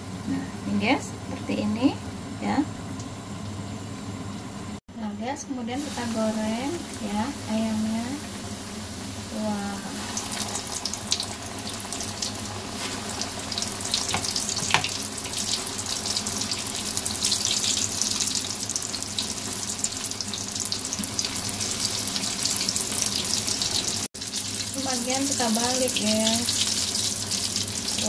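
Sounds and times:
chicken deep-frying in oil: 5.6s - 28.0s.

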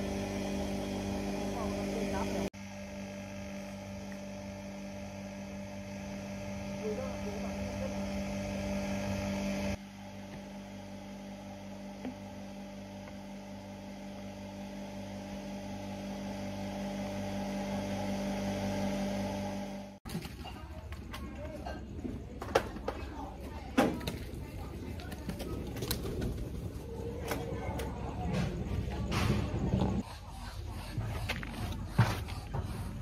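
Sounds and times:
crusher motor humming: 0.0s - 20.0s.

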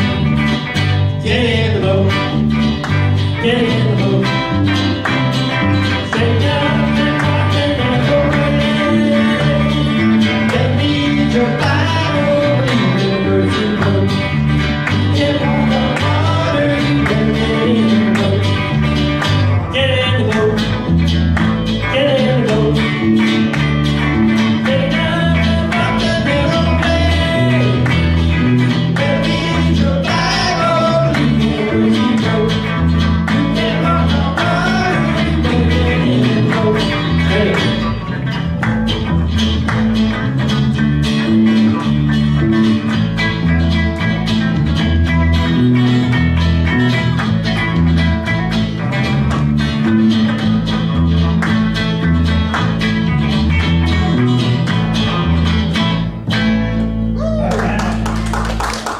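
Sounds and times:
acoustic guitar strummed: 0.0s - 58.3s
electric bass: 0.0s - 58.9s
electric lead guitar: 0.0s - 58.9s
person singing: 1.2s - 2.5s, 3.3s - 5.1s, 5.8s - 18.9s, 19.6s - 20.9s, 21.8s - 23.2s, 24.5s - 38.1s.

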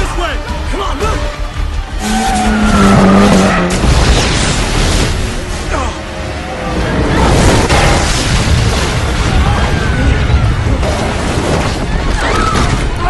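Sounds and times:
car crash booms and crashing: 3.2s - 5.8s, 6.8s - 13.0s.

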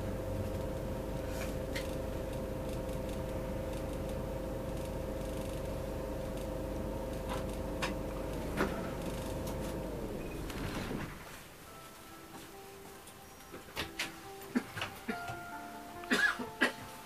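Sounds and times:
bus engine rumble: 0.0s - 11.3s
constant hum: 0.0s - 11.7s.

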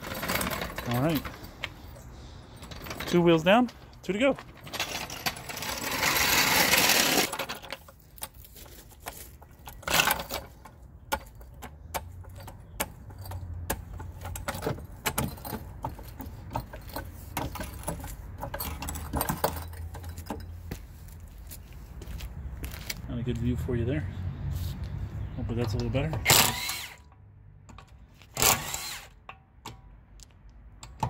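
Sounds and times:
rustling handling noise: 0.0s - 11.6s
metal tools clinking: 0.0s - 20.8s.

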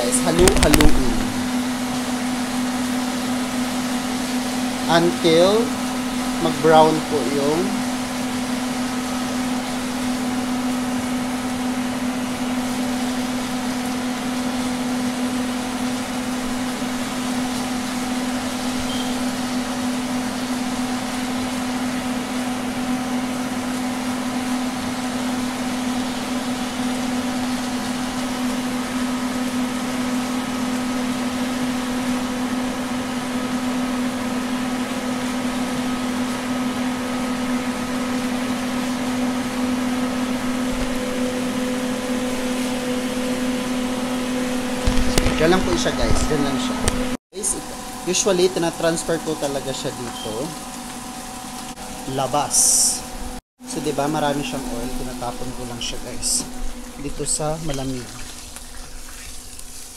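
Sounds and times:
kitchen fan motor humming: 0.0s - 59.9s
meat and onions frying: 0.1s - 59.9s.

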